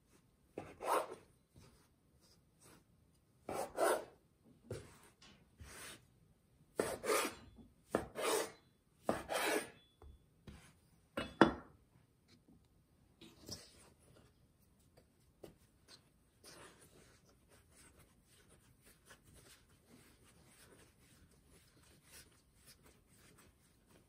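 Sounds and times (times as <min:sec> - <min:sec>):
knife scraping through dough: 0:00.6 - 0:01.3, 0:03.5 - 0:04.8, 0:06.8 - 0:09.8, 0:15.9 - 0:24.0.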